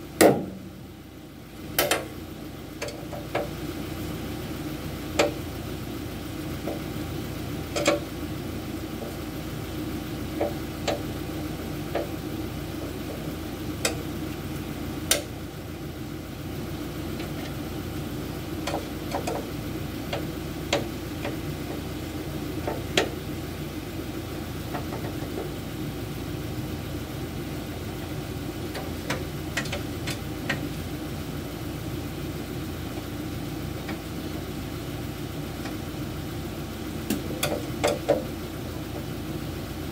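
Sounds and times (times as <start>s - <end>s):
steady engine hum: 0.0s - 39.9s
metal clicks and knocks of hand tools: 7.7s - 8.0s, 28.8s - 30.6s, 37.1s - 38.3s.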